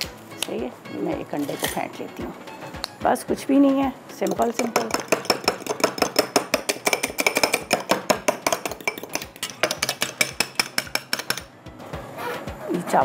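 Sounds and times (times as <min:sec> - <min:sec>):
utensil clinking against bowl: 0:04.2 - 0:11.5.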